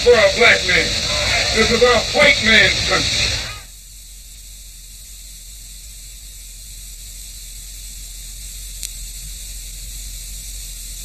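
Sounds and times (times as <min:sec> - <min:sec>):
film soundtrack hiss and hum: 0:00.0 - 0:11.0.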